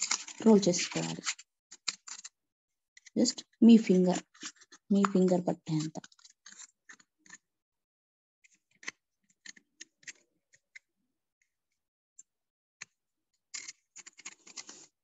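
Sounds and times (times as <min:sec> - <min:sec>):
paper crackling and rustling: 0:00.0 - 0:02.3, 0:13.6 - 0:15.0.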